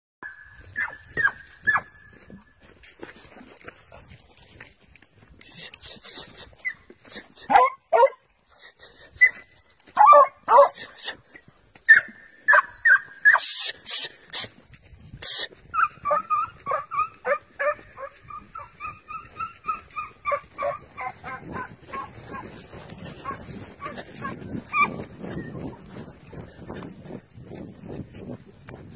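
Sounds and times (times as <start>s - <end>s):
dogs yelping and barking: 0.2s - 2.4s, 6.5s - 8.2s, 9.1s - 10.8s, 11.8s - 13.6s, 15.6s - 27.2s.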